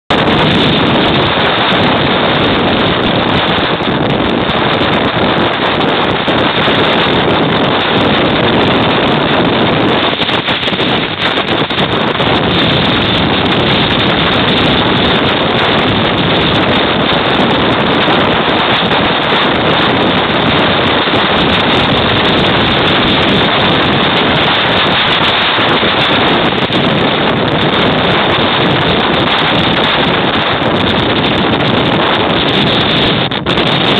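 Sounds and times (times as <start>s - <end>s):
wind buffeting microphone: 0.1s - 33.9s.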